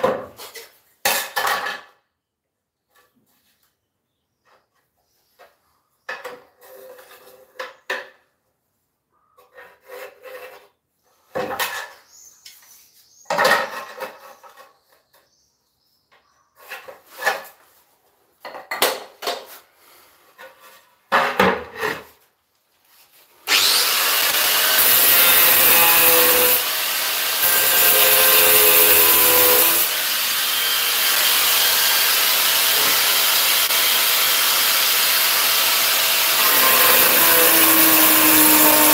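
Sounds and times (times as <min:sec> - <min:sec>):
scraping and rubbing tile by hand: 0:04.6 - 0:07.9, 0:09.2 - 0:13.1, 0:19.4 - 0:21.1
angle grinder cutting tile: 0:23.4 - 0:38.9.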